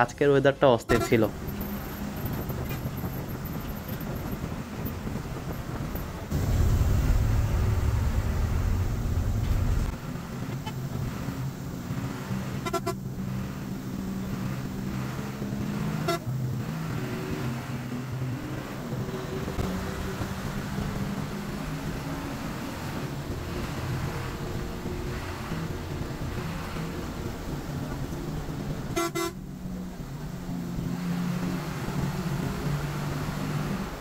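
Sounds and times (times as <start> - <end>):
bus diesel engine droning: 0.9 - 34.0
bus horn blasts: 12.6 - 13.0, 16.0 - 16.3, 28.9 - 29.4.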